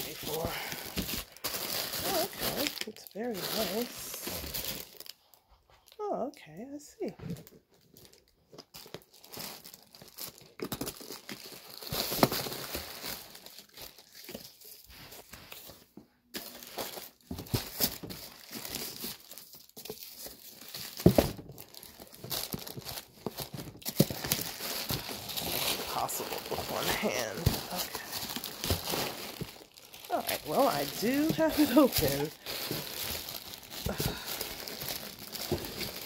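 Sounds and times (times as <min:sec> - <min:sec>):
tissue paper crinkling: 0:00.0 - 0:06.0, 0:07.8 - 0:36.0.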